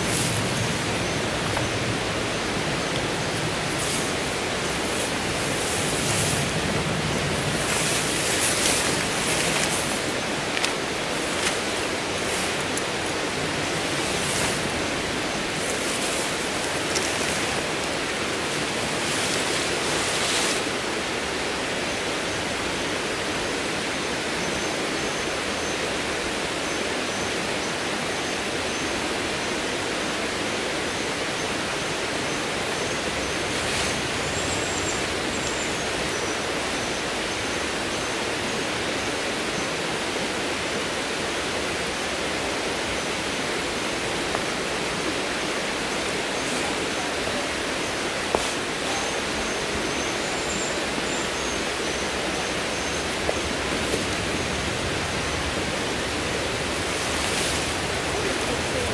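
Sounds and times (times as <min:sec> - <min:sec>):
steady rushing noise: 0:00.0 - 0:24.4, 0:28.0 - 0:58.9
tent fabric rustling: 0:02.9 - 0:20.8, 0:56.1 - 0:58.9.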